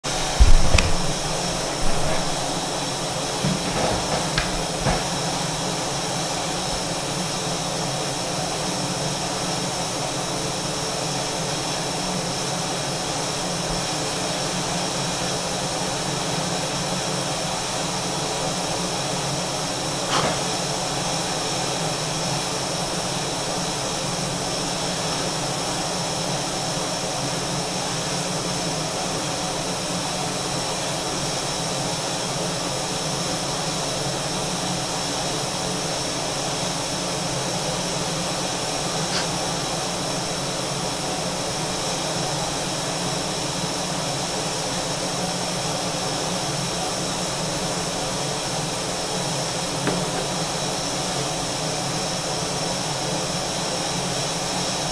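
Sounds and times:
kitchen appliance rushing hiss: 0.0s - 54.9s
soft knocks: 0.1s - 2.8s, 3.4s - 5.3s, 49.8s - 50.4s.

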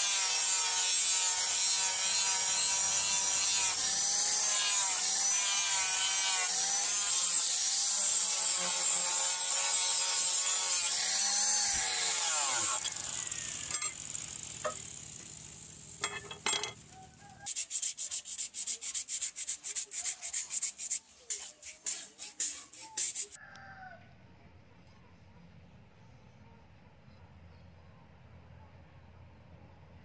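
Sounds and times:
angle grinder whining on steel: 0.0s - 17.0s
cloth rubbing on blade: 17.3s - 23.4s.

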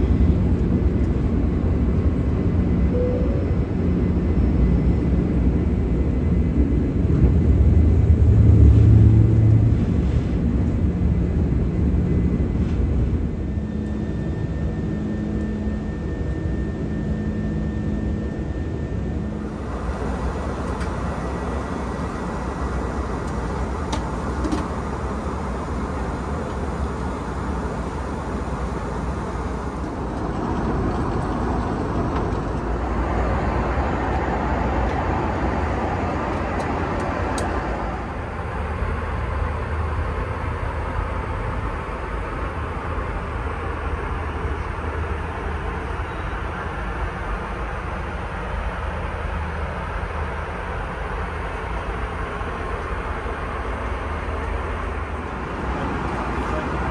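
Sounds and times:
airliner cabin engine drone: 0.0s - 56.9s.

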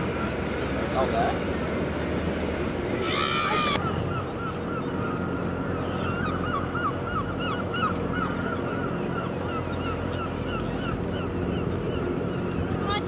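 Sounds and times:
steady low hum: 0.0s - 13.0s
gull calling: 3.0s - 13.0s.

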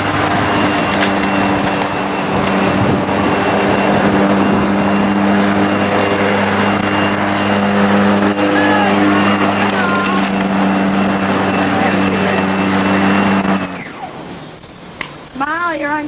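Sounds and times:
lawn mower running: 0.0s - 16.0s.

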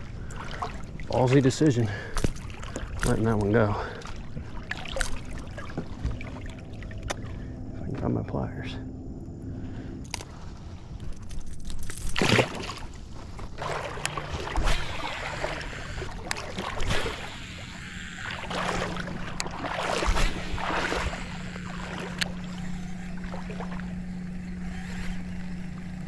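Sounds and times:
water splashing against a kayak: 0.0s - 7.5s, 12.0s - 24.4s
steady low hum: 0.0s - 26.0s.

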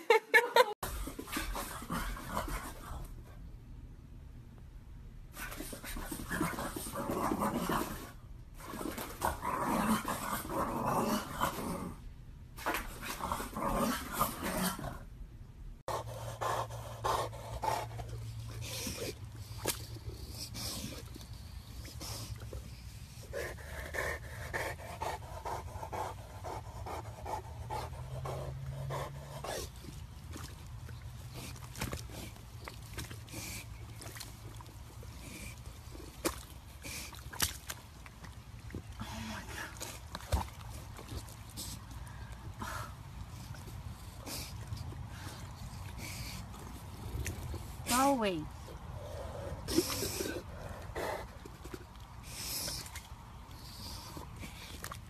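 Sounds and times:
dog panting: 15.9s - 19.2s, 21.8s - 30.0s
small dog growling: 46.3s - 47.9s.

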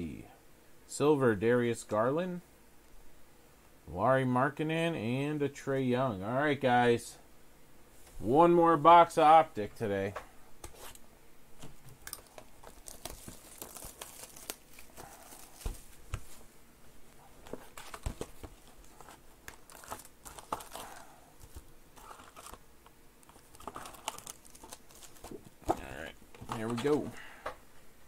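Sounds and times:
foil packs crinkling: 11.9s - 16.4s, 17.4s - 22.6s, 23.2s - 27.2s
cardboard tearing: 12.0s - 15.9s, 17.5s - 22.6s, 23.2s - 27.0s.

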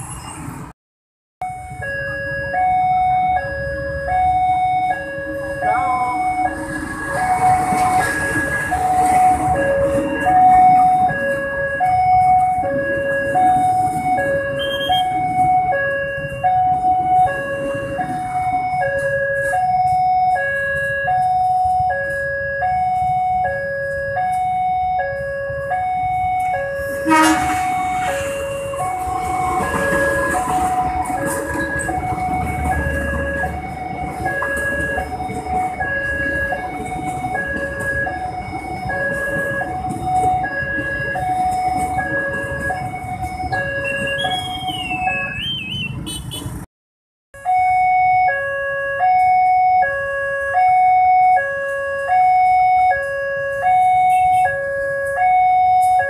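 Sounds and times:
level crossing alarm two tones: 1.4s - 45.9s, 47.4s - 56.0s
train rumbling and clattering past: 5.3s - 19.2s, 26.2s - 46.6s.

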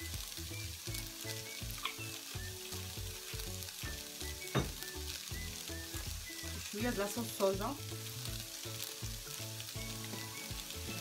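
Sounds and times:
background music with a beat: 0.0s - 7.0s, 8.3s - 11.0s
fish sizzling in a frying pan: 0.0s - 11.0s.

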